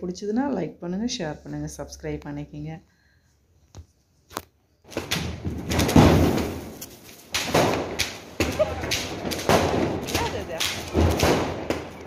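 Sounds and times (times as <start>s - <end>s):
firecrackers banging: 4.9s - 12.0s.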